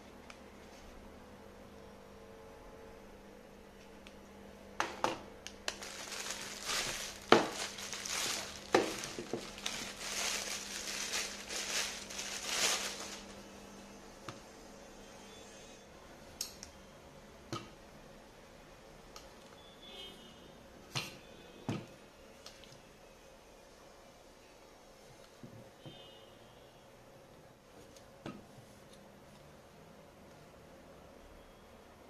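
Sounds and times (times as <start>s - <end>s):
plastic wrapping crinkling: 5.6s - 13.5s.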